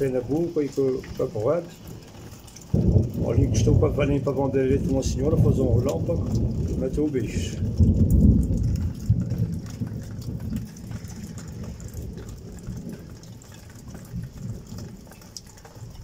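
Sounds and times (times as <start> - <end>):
rain falling: 0.0 - 16.0
rolling thunder: 2.7 - 15.0.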